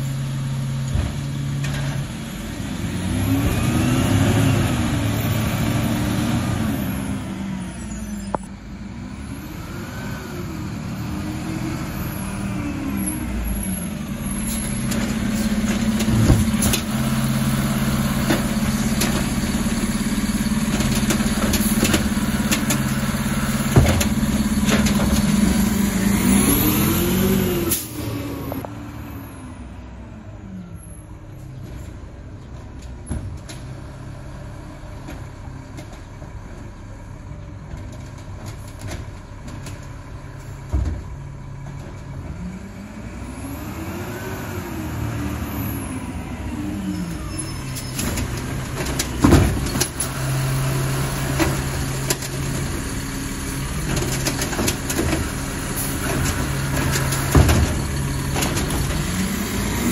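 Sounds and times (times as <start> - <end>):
refuse truck engine revving: 2.4 - 29.3, 42.3 - 59.9.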